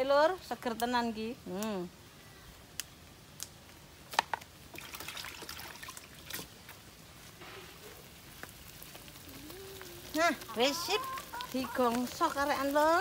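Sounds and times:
stems snapping: 0:02.7 - 0:04.5
leaves rustling in hand: 0:05.6 - 0:13.0.

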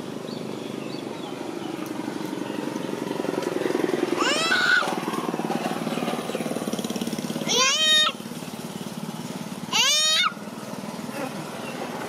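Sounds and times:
small engine running: 0:00.0 - 0:12.0
rising high-pitched call: 0:09.7 - 0:10.4.

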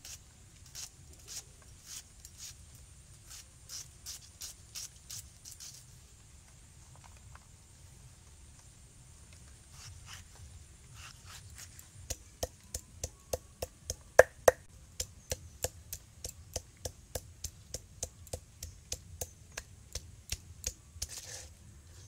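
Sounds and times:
pestle pounding on stone slab: 0:12.1 - 0:19.3.

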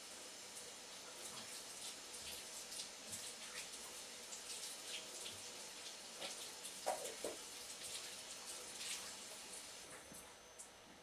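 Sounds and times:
tap water splashing in sink: 0:06.2 - 0:09.4.

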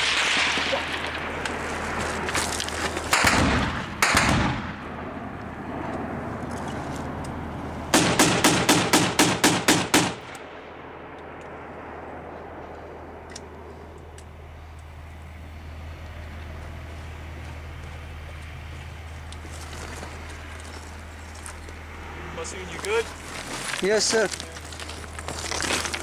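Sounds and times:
automatic weapon fire: 0:03.1 - 0:04.9, 0:07.9 - 0:10.4.

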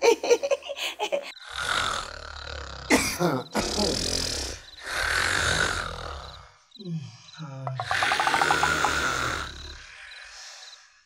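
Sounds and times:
man snoring: 0:01.4 - 0:06.6, 0:07.8 - 0:10.2.

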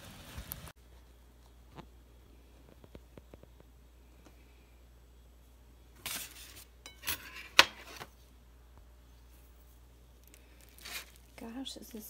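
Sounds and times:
aluminum foil rustling: 0:06.0 - 0:07.6, 0:10.2 - 0:12.0.

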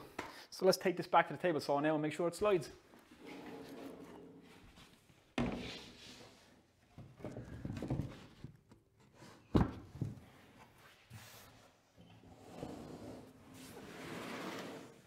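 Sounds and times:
sled scraping in table slots: 0:03.2 - 0:04.4, 0:12.3 - 0:15.0.

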